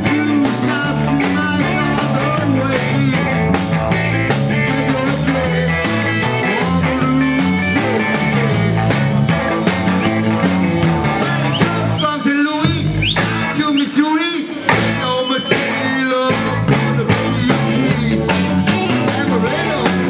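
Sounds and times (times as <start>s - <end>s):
drum kit beat: 0.0s - 14.0s, 14.6s - 20.0s
electric guitar and bass: 0.0s - 20.0s
man singing: 0.0s - 20.0s.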